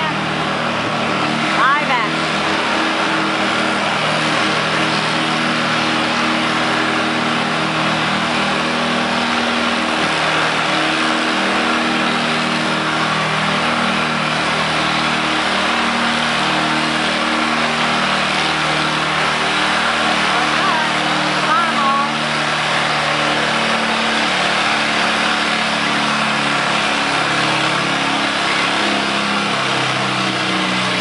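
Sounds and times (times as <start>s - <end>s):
tractor engine running hard: 0.0s - 31.0s.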